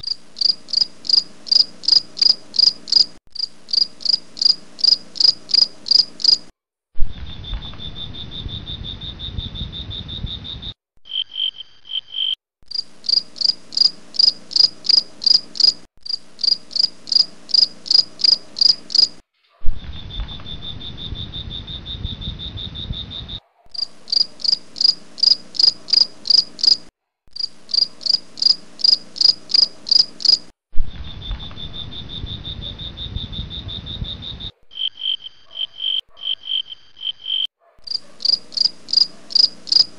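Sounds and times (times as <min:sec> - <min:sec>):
insect trill: 0:00.0 - 0:06.5, 0:07.3 - 0:19.2, 0:19.9 - 0:39.9
insects chirping: 0:00.0 - 0:06.5, 0:07.3 - 0:19.2, 0:20.0 - 0:39.9.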